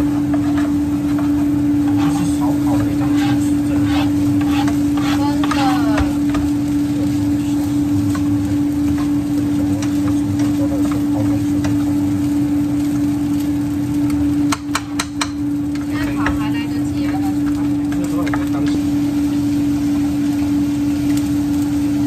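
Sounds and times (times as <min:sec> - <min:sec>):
spatula scraping frying pan: 0:00.0 - 0:12.1
steady hum: 0:00.0 - 0:22.0
spatula tapping pan: 0:02.8 - 0:06.7, 0:08.1 - 0:11.9, 0:14.4 - 0:18.8.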